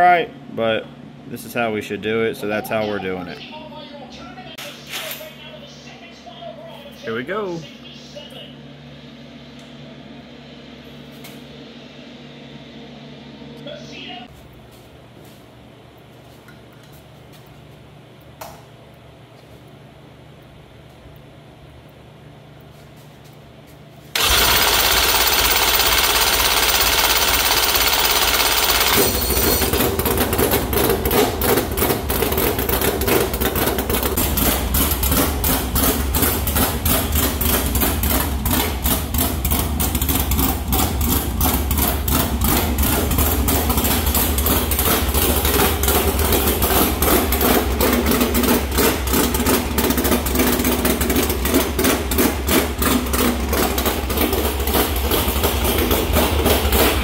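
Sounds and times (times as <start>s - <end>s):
starter motor whirring: 24.2s - 29.7s
race car engine idling: 24.2s - 57.0s.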